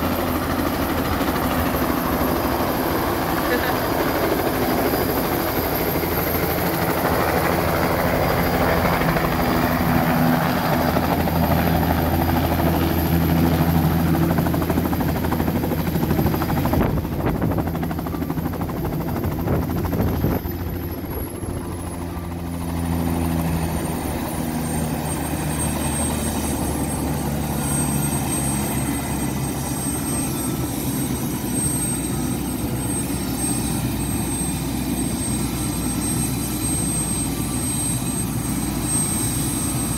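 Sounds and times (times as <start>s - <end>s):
helicopter rotor beating: 0.0s - 39.9s
high turbine whine: 0.0s - 39.9s.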